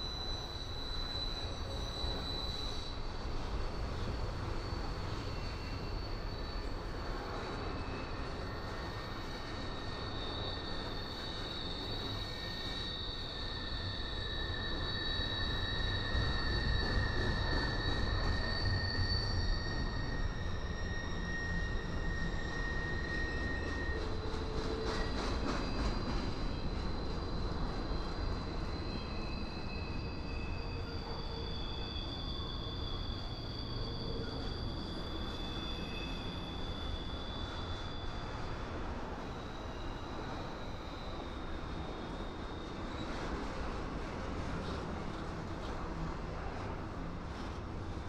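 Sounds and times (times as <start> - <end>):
high wheel squeal: 0.0 - 48.0
train wheels rumbling on track: 0.0 - 48.0
train clatter: 23.2 - 28.8.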